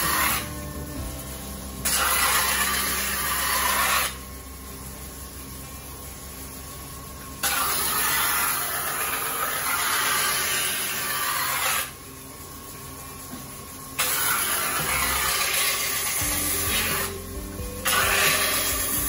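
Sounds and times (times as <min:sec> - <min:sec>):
knife grinding on grinding wheel: 0:00.0 - 0:01.2, 0:01.8 - 0:04.2, 0:07.4 - 0:12.0, 0:14.0 - 0:19.0
grinding wheel humming: 0:00.0 - 0:19.0.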